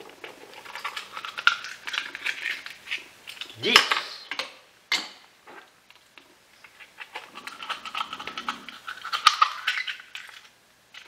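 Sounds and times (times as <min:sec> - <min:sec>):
oyster knife scraping shell: 0:00.2 - 0:03.6, 0:06.6 - 0:11.0.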